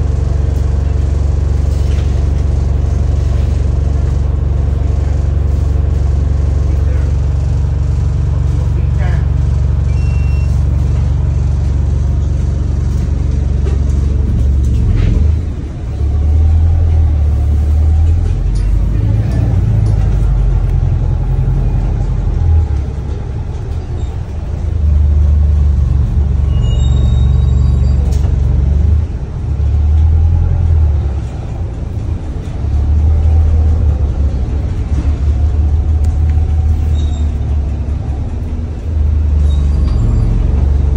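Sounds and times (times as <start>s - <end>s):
bus engine and road rumble: 0.0s - 40.9s
faint squeaks and rattles: 26.3s - 28.4s, 36.5s - 40.9s.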